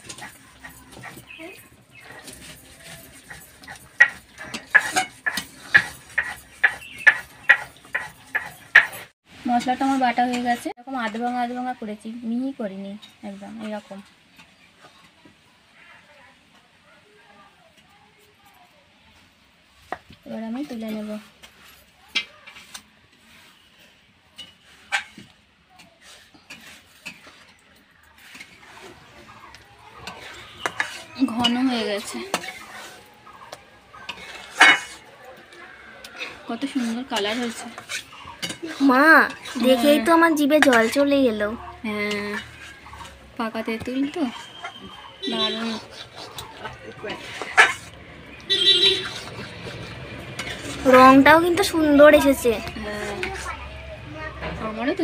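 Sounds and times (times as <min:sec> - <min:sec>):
metal spatula scraping a wok: 0:00.0 - 0:11.7, 0:20.6 - 0:53.7
hand scraping spices off stone: 0:01.0 - 0:09.1.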